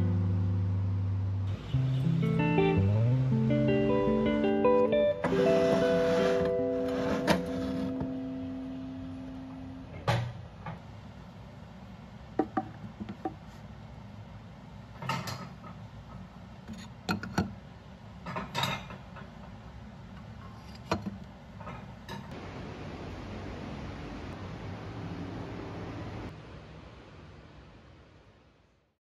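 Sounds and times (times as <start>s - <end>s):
low hum: 0.0s - 5.1s
guitar note: 0.0s - 10.0s.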